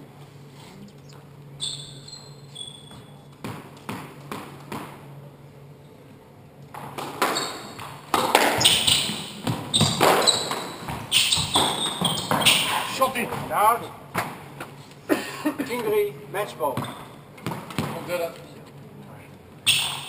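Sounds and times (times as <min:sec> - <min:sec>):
shoes squeaking on wooden floor: 0:01.6 - 0:03.4, 0:07.2 - 0:13.6
squash ball striking racket and walls: 0:02.6 - 0:05.2, 0:06.7 - 0:14.6, 0:16.7 - 0:18.3, 0:19.7 - 0:20.0.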